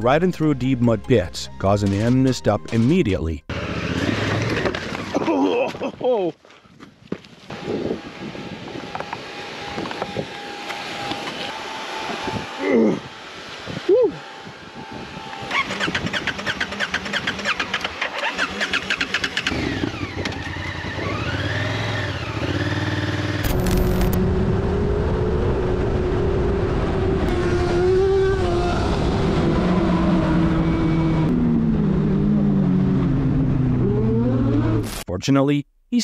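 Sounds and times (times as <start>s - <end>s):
vehicle engine on road: 7.5s - 34.9s
motorcycle engine chugging and revving: 15.5s - 34.8s.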